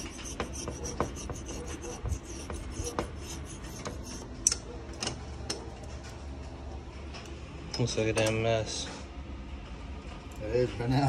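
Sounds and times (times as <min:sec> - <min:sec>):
scraper scraping gasket material: 0:00.0 - 0:04.2.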